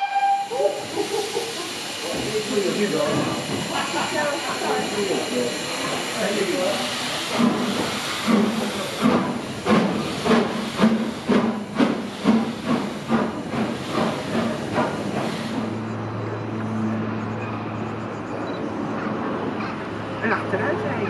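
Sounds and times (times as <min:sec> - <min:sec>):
steam hissing: 0:00.0 - 0:15.9
steam locomotive exhaust chuffs: 0:00.0 - 0:16.2.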